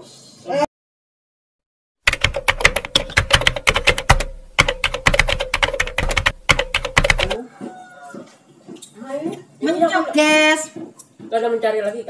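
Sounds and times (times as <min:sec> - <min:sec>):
rapid sharp clicks: 0:02.1 - 0:07.4.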